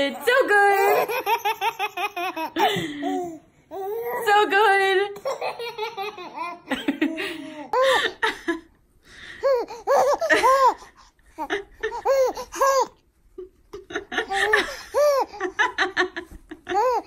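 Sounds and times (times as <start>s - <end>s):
baby laughing: 0.5s - 4.1s, 5.2s - 8.2s, 9.4s - 13.0s, 14.0s - 17.0s.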